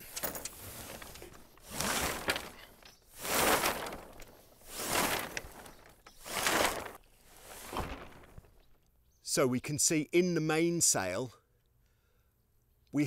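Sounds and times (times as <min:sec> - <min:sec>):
sailcloth and rope rustling: 0:00.0 - 0:08.8.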